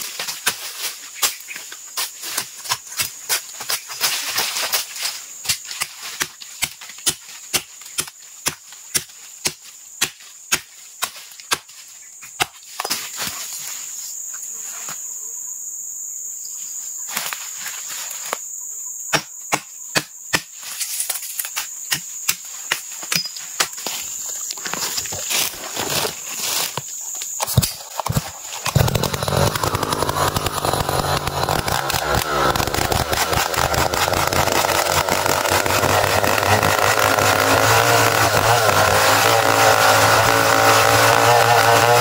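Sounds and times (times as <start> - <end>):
machete chopping log: 5.4 - 13.2, 19.1 - 20.6, 27.3 - 42.0
high insect drone: 9.7 - 37.1.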